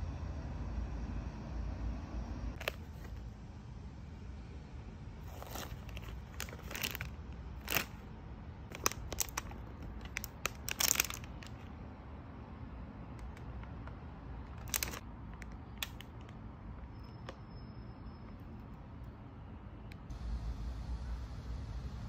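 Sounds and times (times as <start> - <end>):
plastic packaging crinkling: 5.2 - 8.0, 8.7 - 11.7, 14.5 - 16.2.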